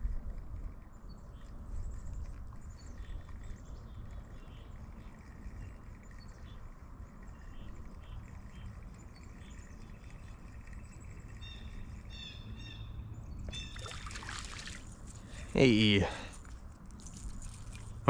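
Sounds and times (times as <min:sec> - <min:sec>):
low background rumble: 0:00.0 - 0:18.0
birds chirping: 0:02.6 - 0:16.4.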